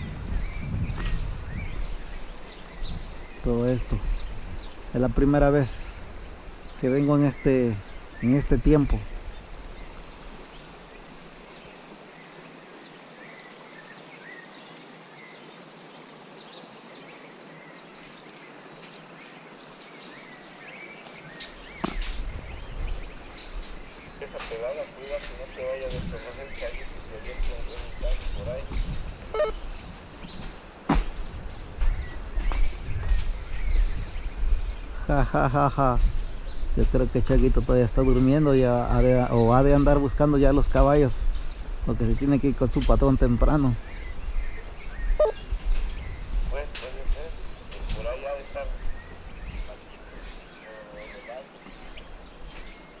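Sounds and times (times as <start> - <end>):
sharp falling bird call: 29.3 - 29.7
faint bird chirps: 29.3 - 30.4, 43.8 - 46.4.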